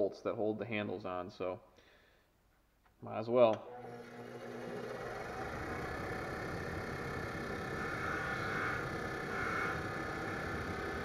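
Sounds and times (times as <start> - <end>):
bench grinder motor running: 3.7 - 11.0.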